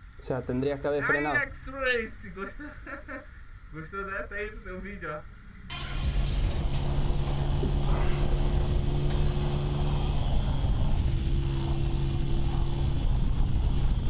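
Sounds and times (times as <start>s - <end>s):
motorcycle engine cruising: 5.8s - 14.0s.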